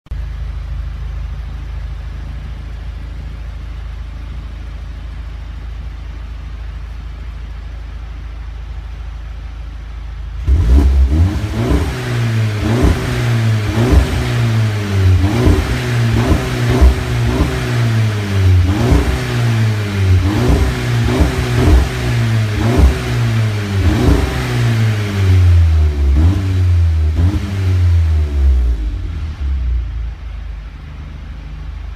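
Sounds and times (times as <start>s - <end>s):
car engine revving: 10.3s - 31.9s.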